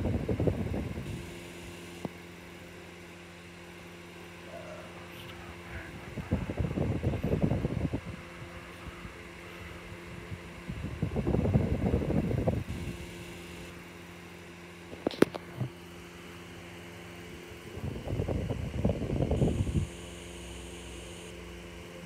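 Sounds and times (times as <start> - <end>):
low hum: 0.0 - 22.0
tape playing through tv speaker: 4.3 - 12.6.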